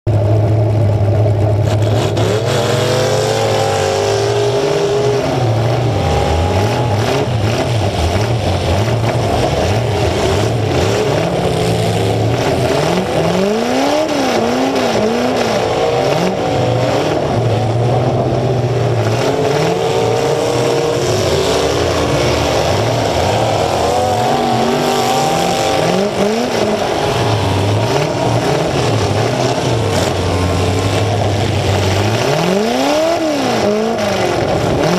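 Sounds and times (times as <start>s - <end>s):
other car engines revving: 0.1s - 34.9s
car engine revving loudly: 0.2s - 34.9s.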